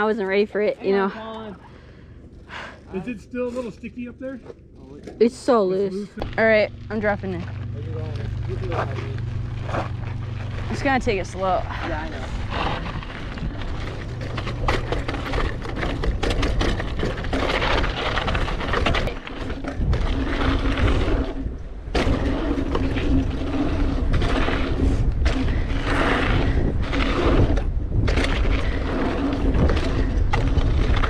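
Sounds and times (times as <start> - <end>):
tyres crunching over dirt and stones: 6.1 - 31.0
wind rumble on microphone: 6.2 - 31.0
bike rattling clicks and knocks: 8.2 - 31.0.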